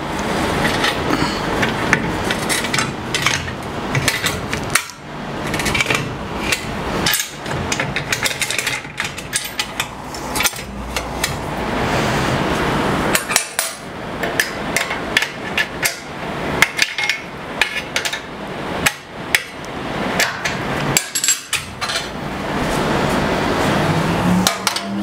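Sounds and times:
metallic clicks and knocks: 0.6 - 11.4.

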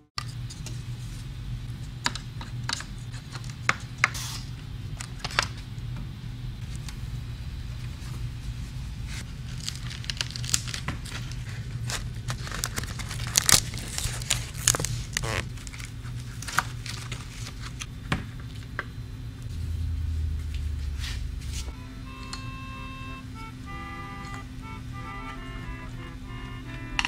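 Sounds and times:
steady low hum: 0.0 - 27.0
covering scraping and tearing: 9.1 - 17.9
loud low drone: 19.4 - 27.0.

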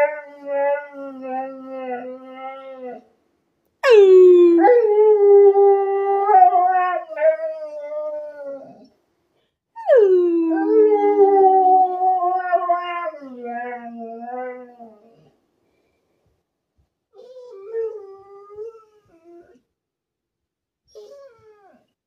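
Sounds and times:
dog howling: 9.8 - 15.2.

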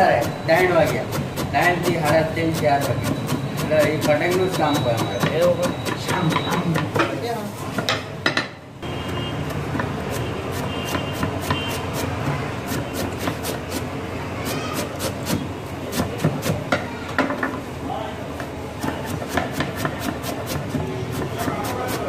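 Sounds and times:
knife chopping on wooden board: 14.8 - 16.7, 18.8 - 22.0.

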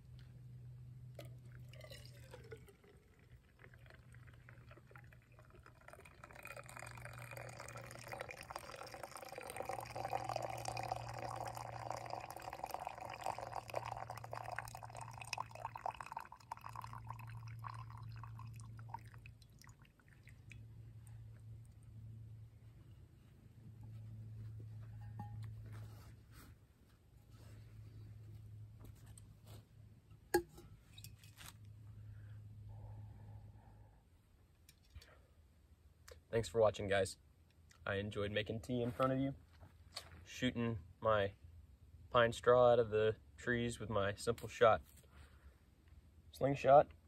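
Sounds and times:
liquid pouring into container: 1.1 - 21.2.

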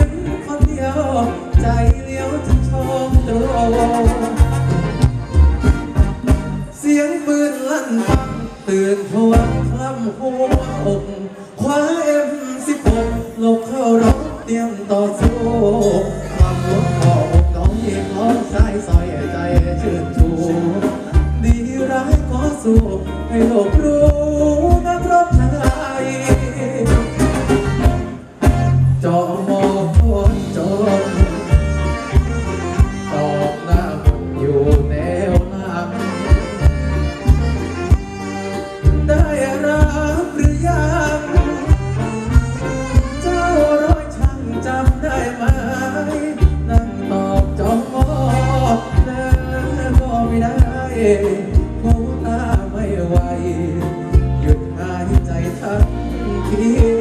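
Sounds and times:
band music over loudspeakers: 0.0 - 57.0
man singing: 0.0 - 57.0.

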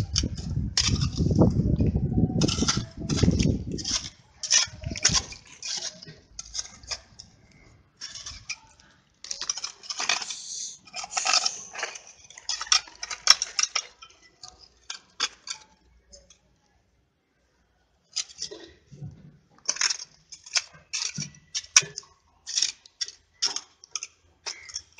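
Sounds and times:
hand tool scraping stony soil: 0.0 - 7.2, 8.0 - 13.8
pebbles clinking: 0.0 - 16.4.

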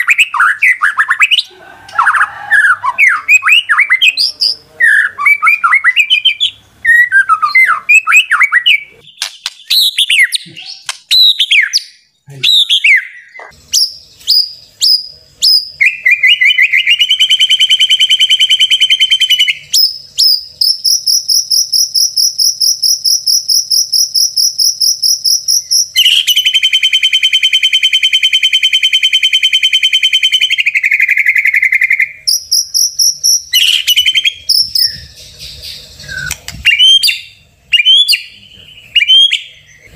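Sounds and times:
bird whistling song: 0.0 - 1.5, 2.1 - 39.9
bird trills: 0.0 - 39.9.

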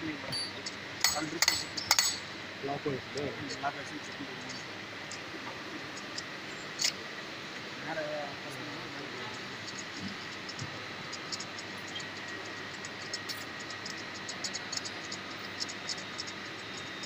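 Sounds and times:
steady hiss: 0.0 - 17.0
metallic ticks and clicks: 0.3 - 2.3.

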